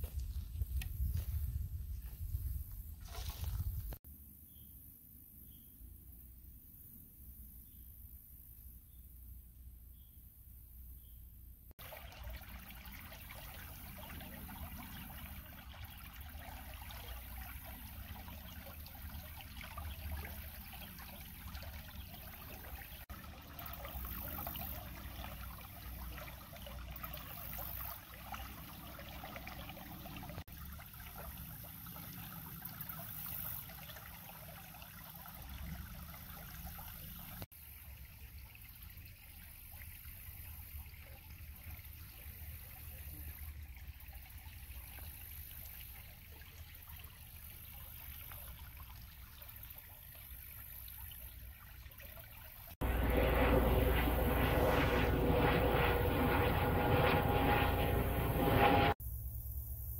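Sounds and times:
stream trickling and burbling: 11.7s - 58.9s
low rumble: 52.8s - 59.4s.

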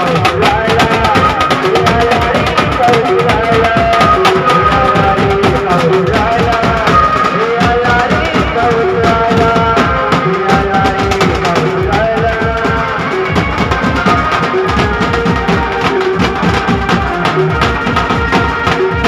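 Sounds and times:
banjo band playing: 0.0s - 19.0s
bass drum: 0.0s - 19.0s.

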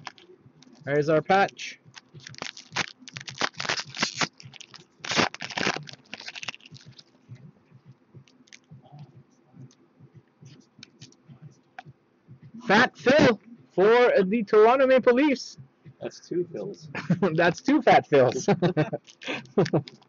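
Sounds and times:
plastic card sleeve crinkling: 0.0s - 7.1s.

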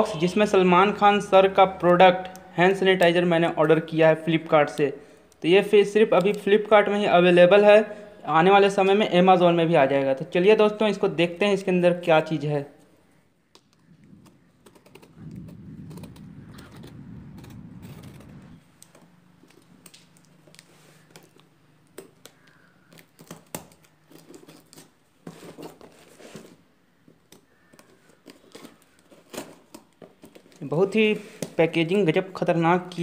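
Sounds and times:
taps scratches and crinkles of cardboard: 17.4s - 31.7s
tool scraping packing tape: 17.9s - 31.6s.

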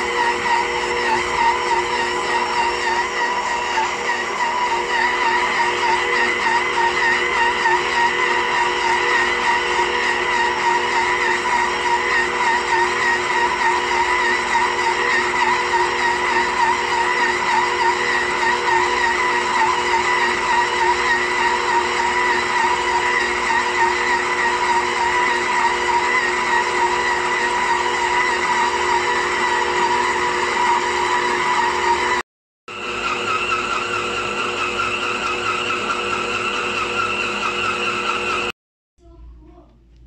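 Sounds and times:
stand mixer motor whining: 0.0s - 38.6s.

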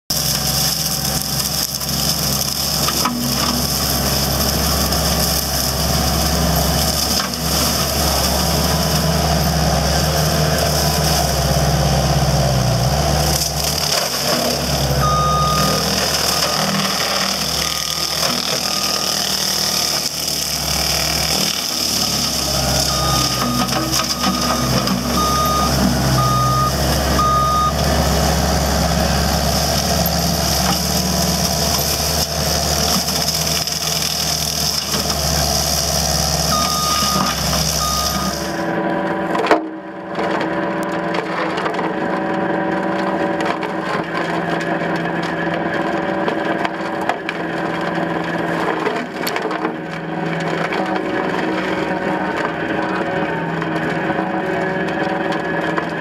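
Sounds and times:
mower head cutting brush: 0.1s - 39.6s
diesel engine under load: 0.1s - 56.0s
reverse alarm beeps: 15.0s - 16.7s, 22.8s - 27.8s, 36.5s - 38.6s.

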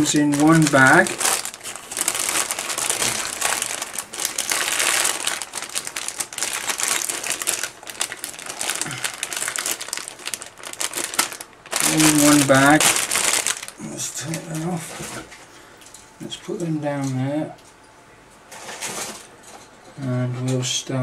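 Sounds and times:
plastic bag crinkling: 0.0s - 15.5s.

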